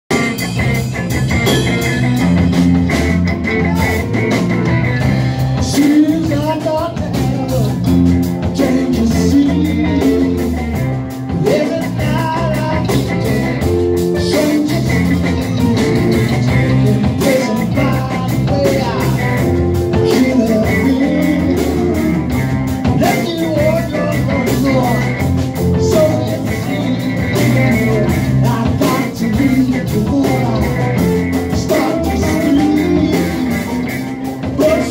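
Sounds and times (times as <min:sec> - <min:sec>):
live rock band playing: 0:00.1 - 0:34.9
man singing into microphone: 0:05.5 - 0:34.9.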